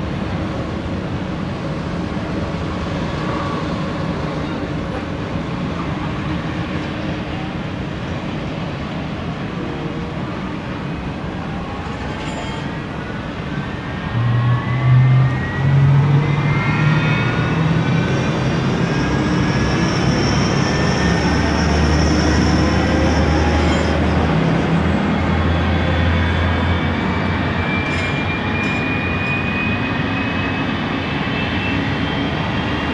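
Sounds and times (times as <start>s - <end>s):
jet engine starting whine: 10.3s - 32.9s.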